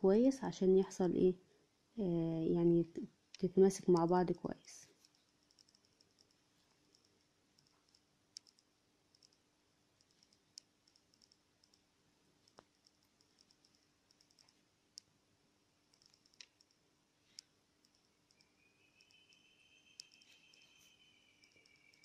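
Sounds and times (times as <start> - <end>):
faint low hum: 0.0 - 22.0
crochet hook clicking: 5.0 - 9.4, 10.0 - 11.8, 12.4 - 15.1, 15.9 - 19.4, 20.0 - 22.0.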